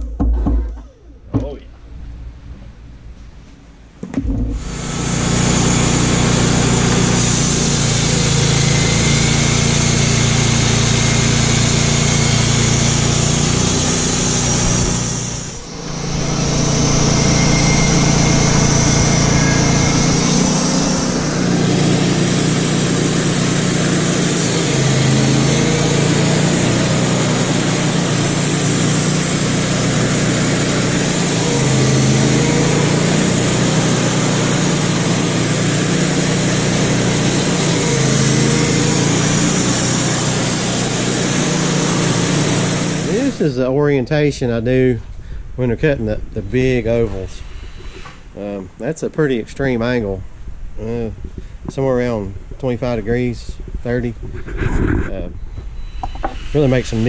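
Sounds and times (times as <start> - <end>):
band sawmill cutting log: 4.5 - 43.7.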